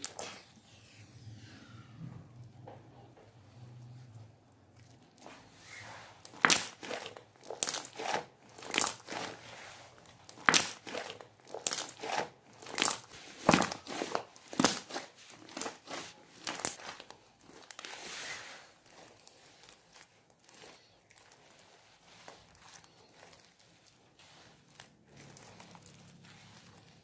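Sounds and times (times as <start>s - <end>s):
slime popping and crackling: 6.2s - 9.4s, 10.0s - 18.0s, 18.8s - 27.0s.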